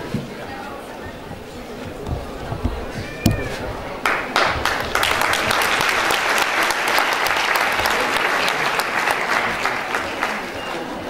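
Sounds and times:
audience applauding: 0:03.2 - 0:11.0.

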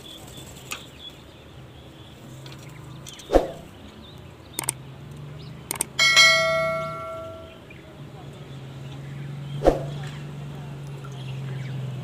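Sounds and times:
falling sweep: 0:03.3 - 0:03.7, 0:09.6 - 0:10.0
mouse clicks: 0:04.6 - 0:04.8, 0:05.7 - 0:05.9
notification bell ding: 0:06.0 - 0:07.6.

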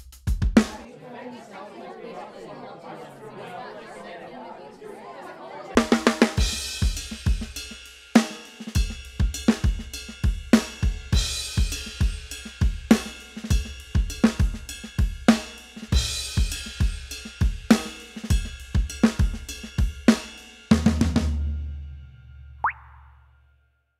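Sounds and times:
drum kit beat: 0:00.0 - 0:00.8, 0:05.8 - 0:21.4.

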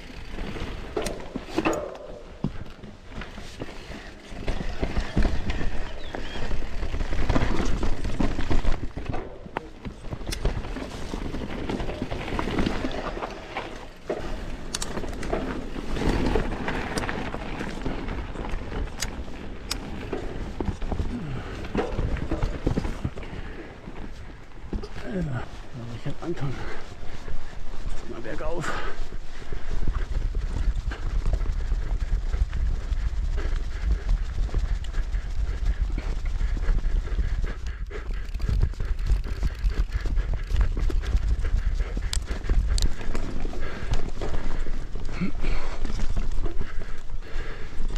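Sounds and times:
bike knocks and rattles: 0:00.0 - 0:25.0
tyres rolling over dirt and rock: 0:00.0 - 0:26.8.

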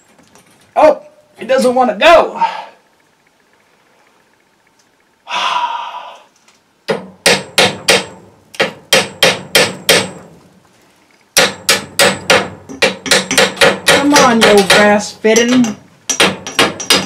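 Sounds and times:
hammer striking metal fitting: 0:11.4 - 0:17.0.

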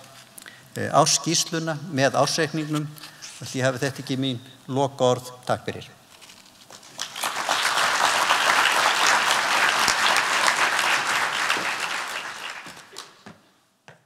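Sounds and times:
audience applauding: 0:06.8 - 0:13.3.

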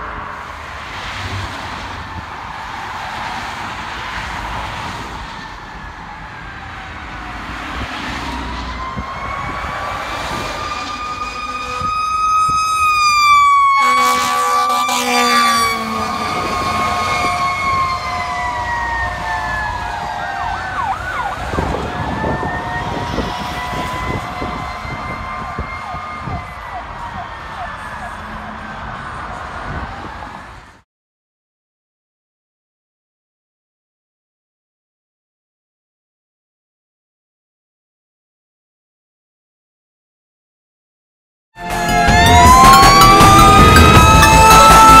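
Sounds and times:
road traffic noise: 0:00.0 - 0:30.8, 0:41.6 - 0:45.0
mechanical siren wailing: 0:05.2 - 0:29.4, 0:41.6 - 0:45.0
air horn blast: 0:10.4 - 0:12.0, 0:13.7 - 0:17.4, 0:41.6 - 0:45.0.

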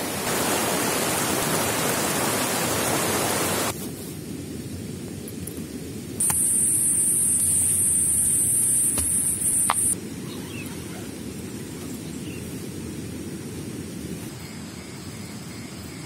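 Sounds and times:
high-pitched insect buzz: 0:06.2 - 0:10.0.

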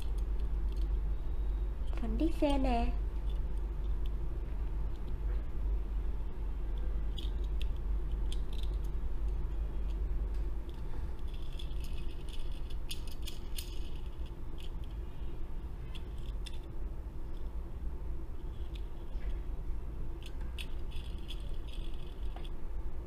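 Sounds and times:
metal toy clicking and rattling: 0:00.0 - 0:01.0, 0:01.8 - 0:04.2, 0:06.8 - 0:10.0, 0:10.6 - 0:15.1, 0:15.8 - 0:16.7, 0:18.4 - 0:19.2, 0:20.1 - 0:22.6
steady low hum: 0:00.0 - 0:23.0.

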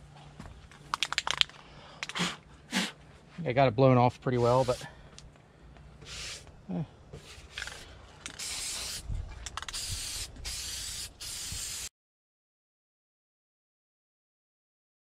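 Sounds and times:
aerosol spray can hissing: 0:04.4 - 0:04.9, 0:06.0 - 0:06.5, 0:08.3 - 0:11.9.

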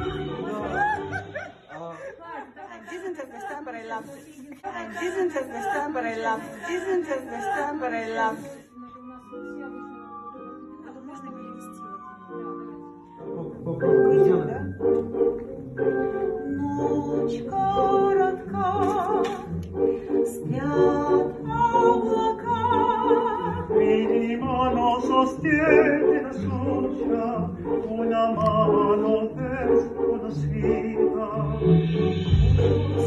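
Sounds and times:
backing accompaniment: 0:00.0 - 0:01.7
person singing with vibrato: 0:20.3 - 0:33.0.

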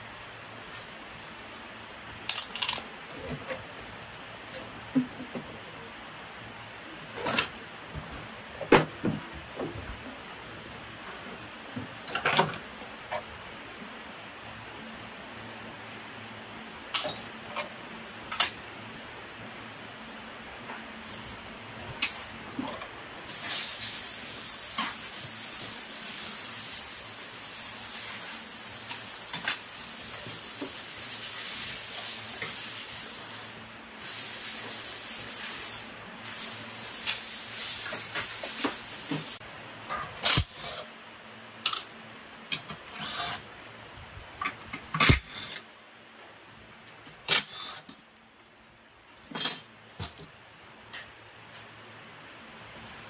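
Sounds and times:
high-pitched spraying hiss: 0:23.2 - 0:39.4.

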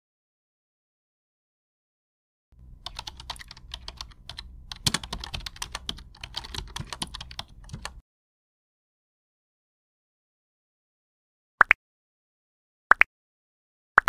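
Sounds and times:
keyboard typing: 0:02.6 - 0:08.0
low hum: 0:02.6 - 0:08.0.

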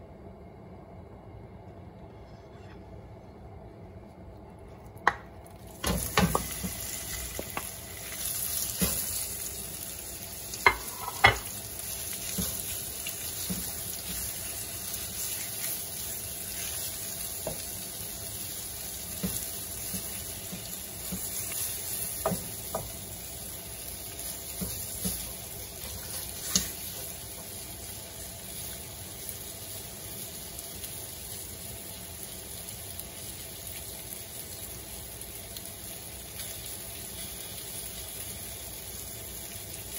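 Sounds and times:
shrimp sizzling in oil: 0:05.5 - 0:39.9
wooden spatula knocking pan: 0:22.1 - 0:23.0.

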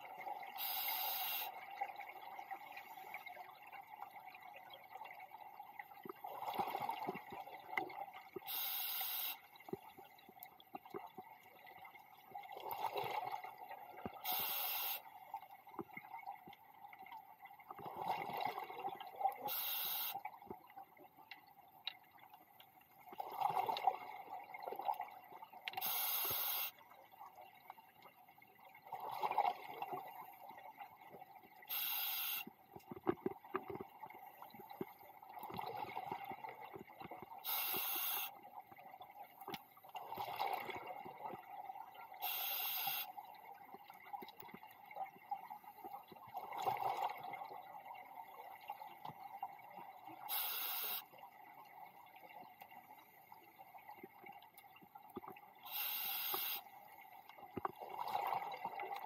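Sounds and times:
regulator inhale hiss: 0:00.6 - 0:01.5, 0:08.5 - 0:09.4, 0:14.3 - 0:15.0, 0:19.5 - 0:20.2, 0:25.8 - 0:26.7, 0:31.7 - 0:32.5, 0:37.5 - 0:38.3, 0:42.2 - 0:43.1, 0:50.3 - 0:51.0, 0:55.7 - 0:56.6
exhaled bubbles gurgling: 0:17.7 - 0:19.7, 0:35.2 - 0:39.1, 0:39.9 - 0:52.3, 0:57.4 - 0:59.0.

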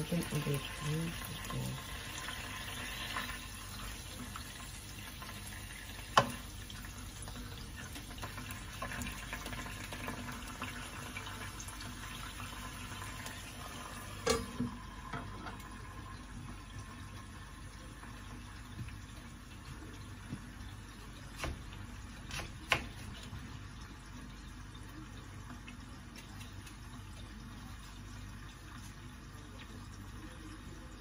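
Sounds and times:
sausages sizzling in a pan: 0:00.0 - 0:21.1.

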